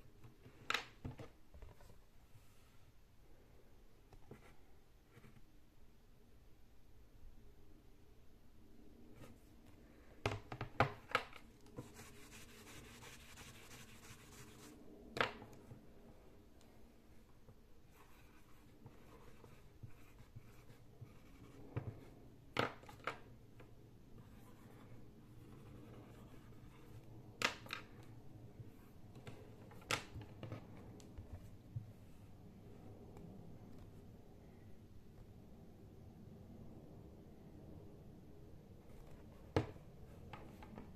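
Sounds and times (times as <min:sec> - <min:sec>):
marker scratching on whiteboard: 0:04.2 - 0:05.4, 0:11.7 - 0:14.8, 0:17.9 - 0:22.0, 0:24.2 - 0:27.0.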